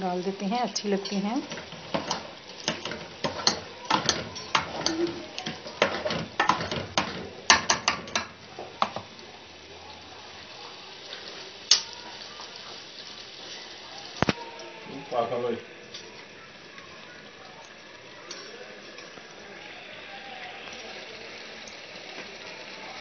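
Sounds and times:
metal spoon scraping a pot: 0.7s - 8.3s.

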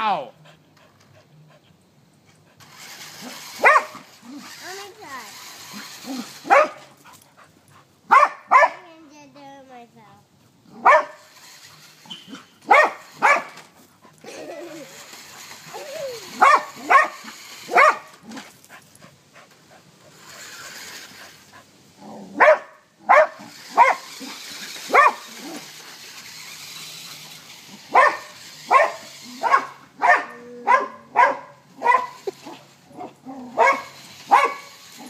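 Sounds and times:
dog barking: 3.6s - 4.0s, 6.4s - 6.8s, 8.1s - 8.8s, 10.8s - 11.2s, 12.7s - 13.6s, 16.4s - 18.1s, 22.4s - 24.1s, 24.9s - 25.3s, 27.9s - 34.8s.

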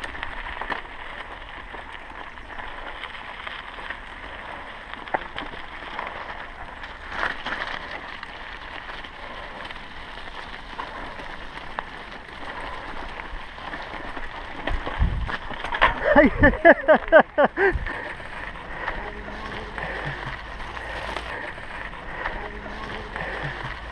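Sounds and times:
bike chain and frame rattling: 0.0s - 23.9s
bike tyres crunching on gravel: 0.0s - 23.9s
wind buffeting microphone: 12.3s - 16.7s, 17.6s - 23.9s.

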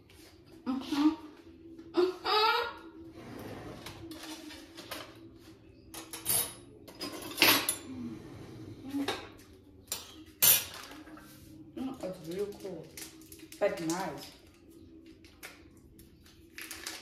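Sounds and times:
dishes and cutlery clinking: 5.9s - 8.0s, 9.0s - 11.3s.

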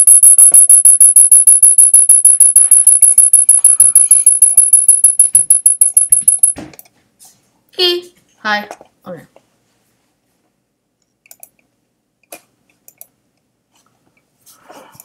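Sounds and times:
high-pitched pulsing ringing tone: 0.0s - 6.6s.

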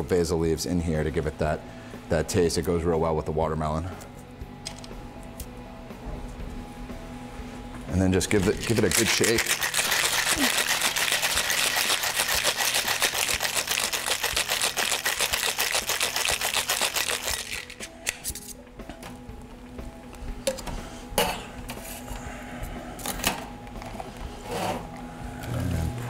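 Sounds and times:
soft background music: 0.0s - 26.0s
ice rattling in cocktail shaker: 8.3s - 17.8s
shaker clinks and knocks: 8.4s - 17.9s.

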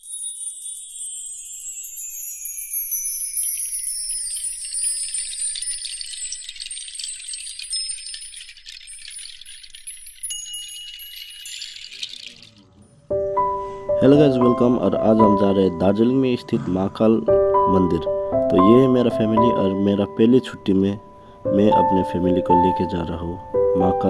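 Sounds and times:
shimmering chimes sweeping downward: 0.0s - 16.6s.

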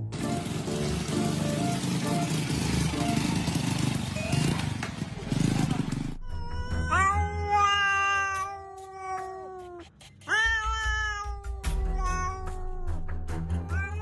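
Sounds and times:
cat meowing: 6.2s - 12.9s, 13.6s - 14.0s.

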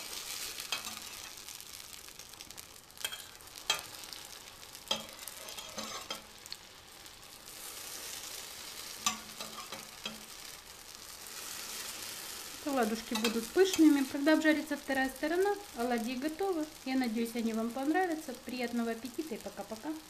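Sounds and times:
fritters sizzling in hot oil: 0.0s - 20.0s
metal utensils clinking on pan: 0.7s - 1.3s, 3.0s - 4.0s, 4.9s - 6.3s, 9.0s - 10.3s, 12.9s - 14.1s.

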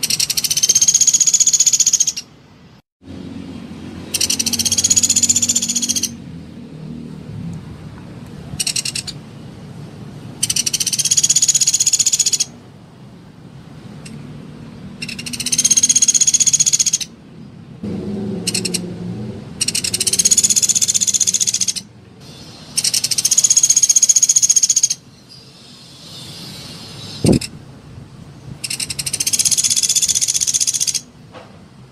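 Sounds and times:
woodpecker rattling trills: 0.0s - 2.3s, 4.1s - 6.2s, 8.6s - 9.2s, 10.4s - 12.5s, 15.0s - 17.1s, 18.5s - 18.9s, 19.6s - 21.9s, 22.7s - 25.0s, 28.6s - 31.1s.

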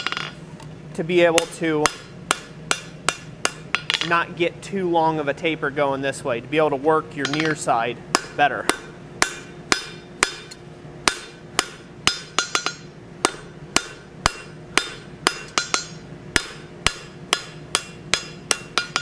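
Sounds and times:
hammer ringing on anvil: 7.2s - 10.5s, 11.1s - 19.0s.

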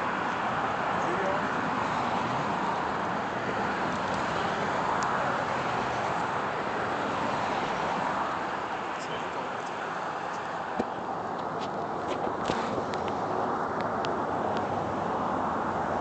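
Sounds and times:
tyres hissing on road: 0.0s - 16.0s.

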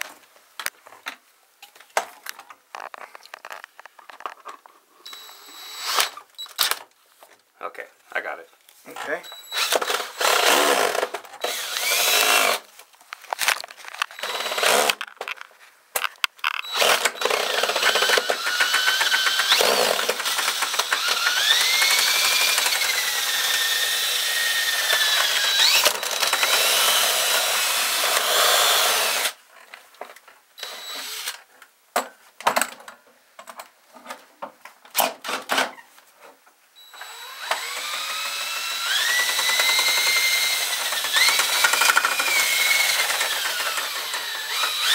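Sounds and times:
cordless drill motor whine: 9.5s - 12.6s, 14.2s - 15.0s, 16.6s - 29.3s, 30.6s - 31.3s, 36.8s - 44.9s.

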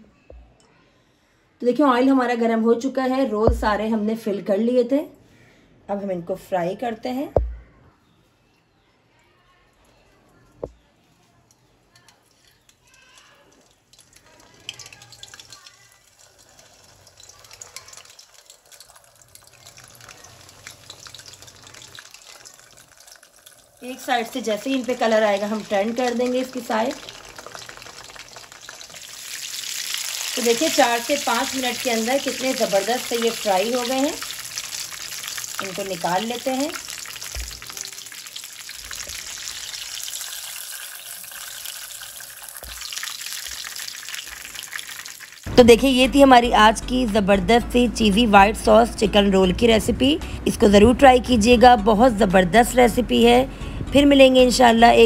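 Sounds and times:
food sizzling in hot oil: 12.0s - 45.6s.

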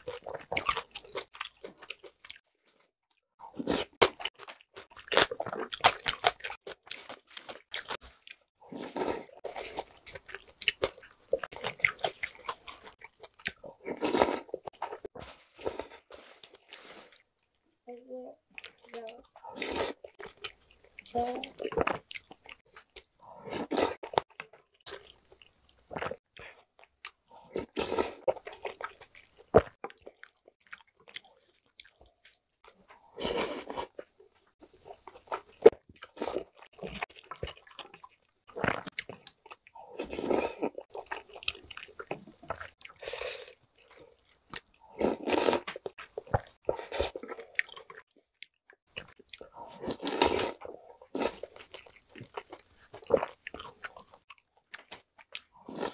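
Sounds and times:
chewing: 0.0s - 17.6s, 18.5s - 55.9s
slurping noodles: 13.8s - 17.2s, 32.9s - 34.0s, 39.9s - 41.2s, 44.8s - 45.8s, 49.5s - 51.6s.

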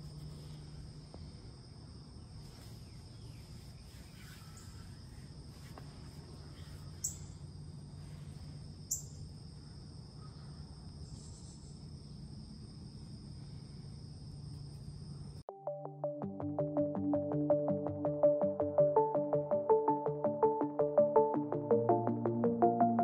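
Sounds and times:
insects trilling: 0.0s - 15.4s.

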